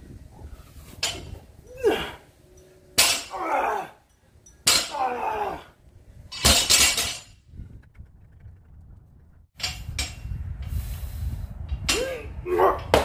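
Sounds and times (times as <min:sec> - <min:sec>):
barbell crashing on concrete: 0:04.6 - 0:05.0, 0:06.3 - 0:07.4.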